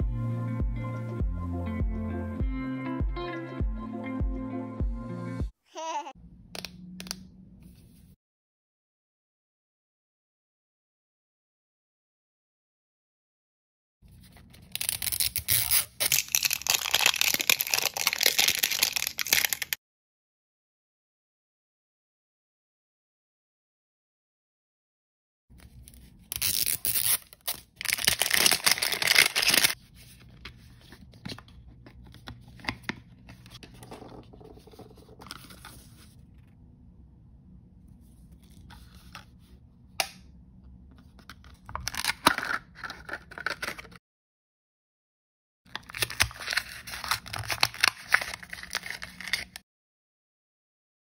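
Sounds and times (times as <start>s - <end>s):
plastic wrapping tearing and crinkling: 14.6s - 19.8s, 26.2s - 29.8s, 45.7s - 49.6s.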